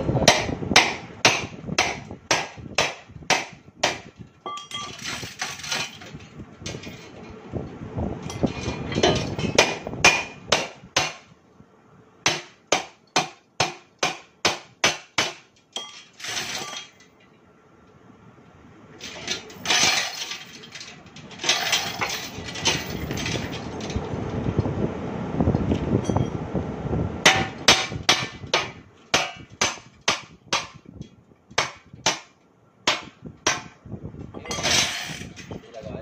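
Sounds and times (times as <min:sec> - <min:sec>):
hammer striking steel: 0:00.2 - 0:05.0, 0:09.0 - 0:11.3, 0:12.2 - 0:16.8, 0:27.2 - 0:30.8, 0:31.6 - 0:33.8
metal clattering: 0:03.9 - 0:07.4, 0:08.3 - 0:11.2, 0:15.8 - 0:17.2, 0:19.0 - 0:24.0, 0:34.4 - 0:35.7.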